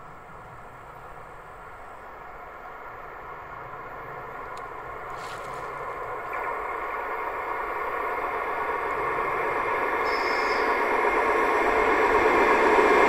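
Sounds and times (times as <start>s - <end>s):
electric train approaching: 0.0s - 13.0s.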